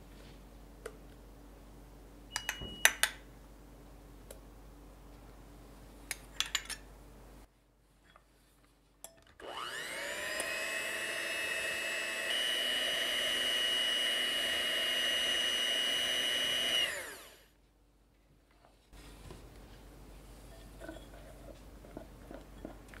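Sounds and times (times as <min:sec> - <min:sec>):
electric hand mixer whining: 0:09.4 - 0:17.5.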